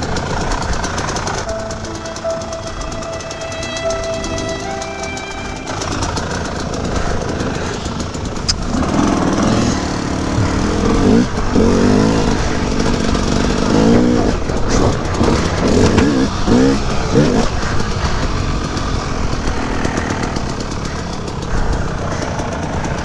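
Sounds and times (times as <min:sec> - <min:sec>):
dirt bike engine revving: 0:05.8 - 0:23.0.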